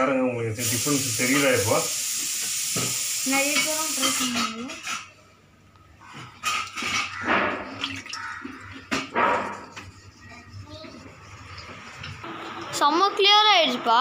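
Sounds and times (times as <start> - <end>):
water hissing: 0.6 - 4.4
water splashing in tank: 6.5 - 9.1.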